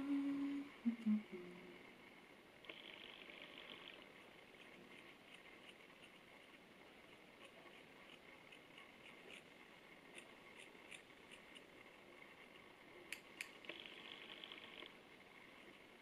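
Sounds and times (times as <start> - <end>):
scissors snipping hair: 10.1 - 11.7, 13.1 - 13.6.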